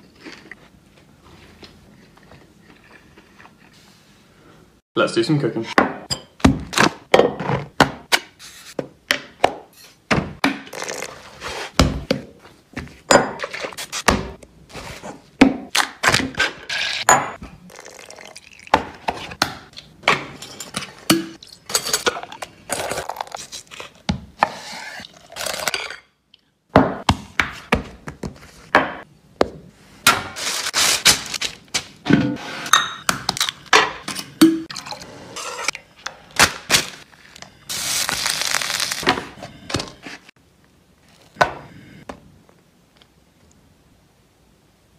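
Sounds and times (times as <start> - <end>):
paper bag rustling: 37.7 - 39.1.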